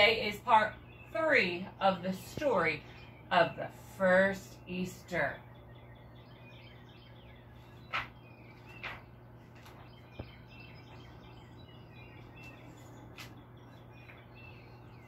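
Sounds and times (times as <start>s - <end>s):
low steady hum: 0.0s - 15.0s
small birds chirping: 0.0s - 15.0s
book pages turning: 7.7s - 10.0s, 12.3s - 13.4s.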